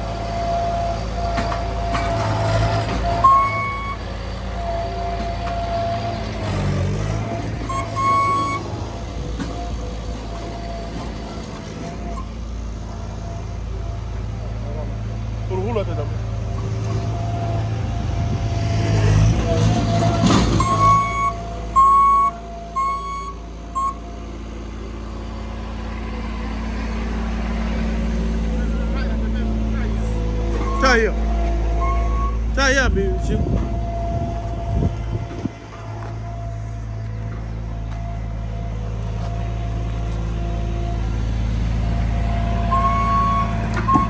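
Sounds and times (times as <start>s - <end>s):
loader engine running: 0.0s - 44.0s
backup alarm beeping: 3.2s - 4.0s, 7.6s - 8.7s, 20.6s - 24.0s, 42.7s - 44.0s.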